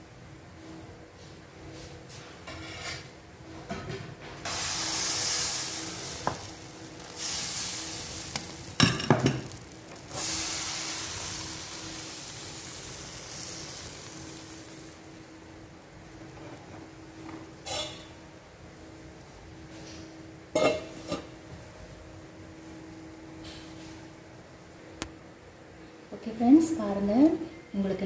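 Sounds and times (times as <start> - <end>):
batter sizzling in a hot pan: 4.5 - 16.4, 17.1 - 18.2.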